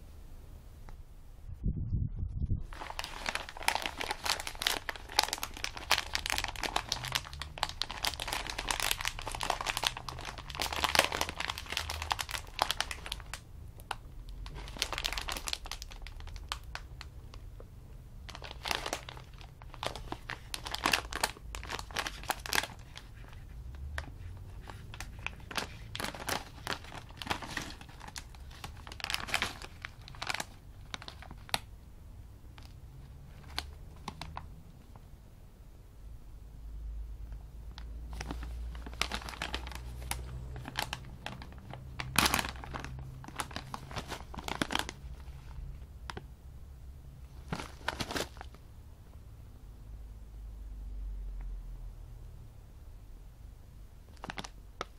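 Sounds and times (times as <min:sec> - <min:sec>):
plastic snack bag crinkling: 0:02.7 - 0:17.6, 0:18.2 - 0:31.7, 0:32.5 - 0:34.5, 0:37.7 - 0:46.2, 0:47.3 - 0:48.6, 0:54.1 - 0:54.9.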